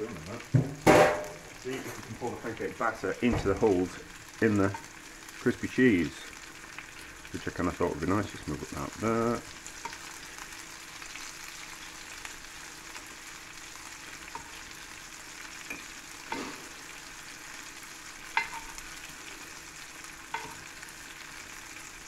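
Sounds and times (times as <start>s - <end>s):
cheese sizzling in a pan: 0.0s - 22.0s
metal spoon clinking on pan: 18.3s - 18.8s.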